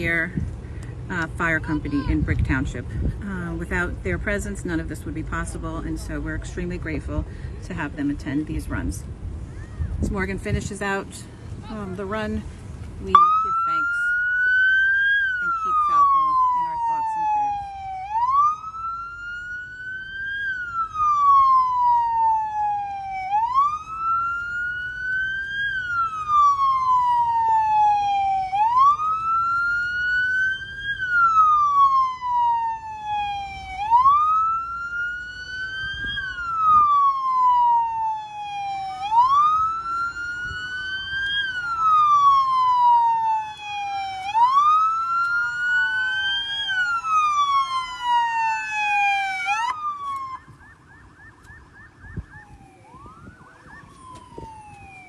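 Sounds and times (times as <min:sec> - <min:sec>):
police siren wailing: 0:13.1 - 0:55.0.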